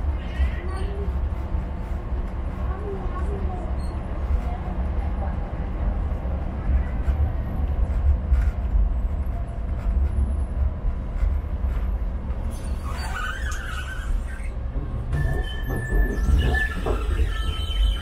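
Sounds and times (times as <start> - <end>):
tram wheels rumbling on rails: 0.0 - 18.0
wheel squeal: 12.4 - 18.0.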